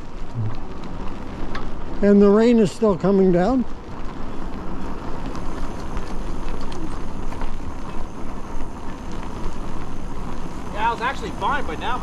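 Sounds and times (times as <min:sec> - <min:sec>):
tyres on wet pavement: 0:00.0 - 0:12.0
wind: 0:00.0 - 0:12.0
faint ticks: 0:03.7 - 0:11.1.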